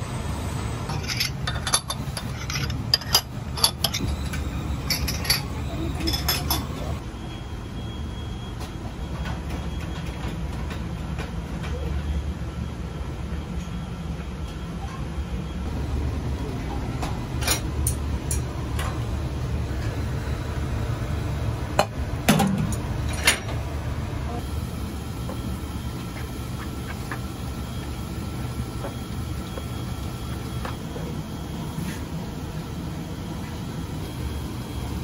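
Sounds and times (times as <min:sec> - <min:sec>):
low rumble of kitchen equipment: 0:00.0 - 0:35.0
bowls and utensils clinking: 0:00.9 - 0:06.8.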